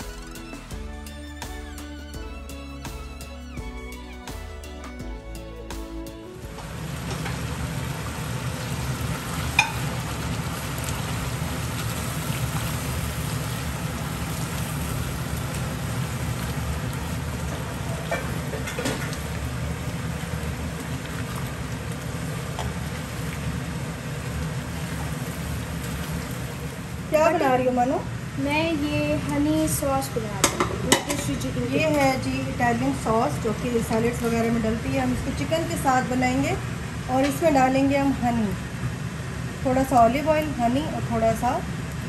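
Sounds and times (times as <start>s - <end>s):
curry simmering and sizzling: 6.4s - 42.0s.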